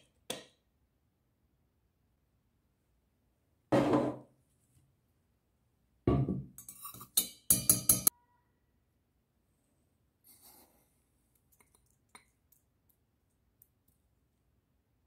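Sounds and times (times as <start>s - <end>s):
metal spoon clinking against pan: 6.6s - 8.1s.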